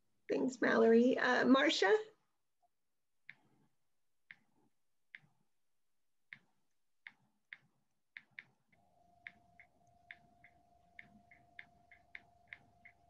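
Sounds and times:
faint steady tone: 8.2s - 13.0s.

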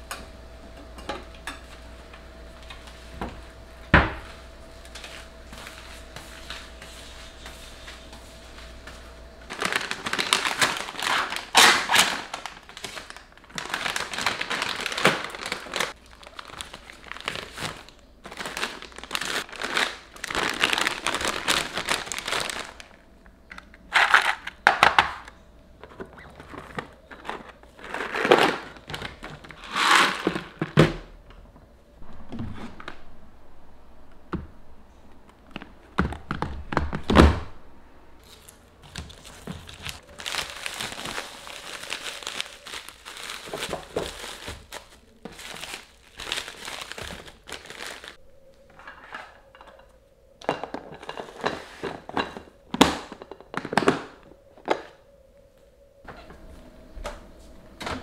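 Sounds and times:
steady hum: 0.0s - 47.4s
plastic pouches crinkling: 9.5s - 25.3s, 25.9s - 30.7s, 38.2s - 48.2s.

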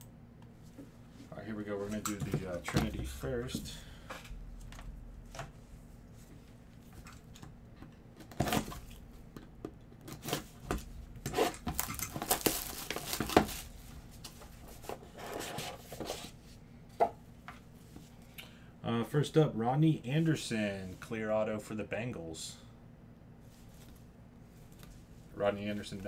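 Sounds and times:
cardboard rustling: 10.1s - 16.4s
box cutter slitting plastic wrap: 11.3s - 13.6s
plastic wrap tearing and crinkling: 11.4s - 13.8s.

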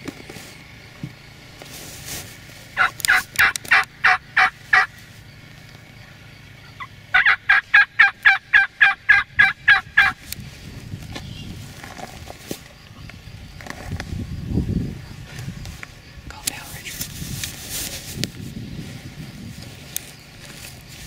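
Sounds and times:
turkey yelping: 2.8s - 5.0s, 6.6s - 10.2s.

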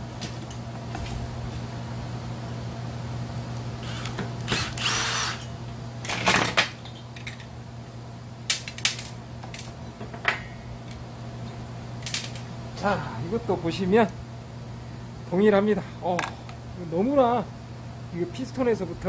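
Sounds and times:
cordless drill running: 3.8s - 5.4s.

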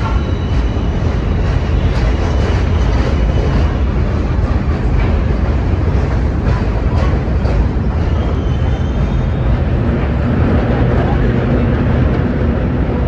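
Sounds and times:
subway train rumbling on rails: 0.0s - 13.0s.

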